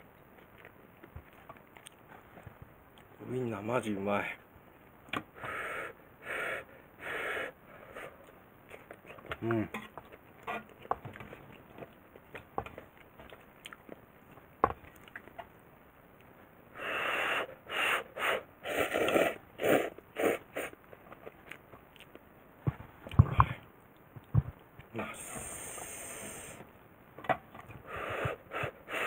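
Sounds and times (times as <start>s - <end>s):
person slurping noodles: 16.8s - 20.8s.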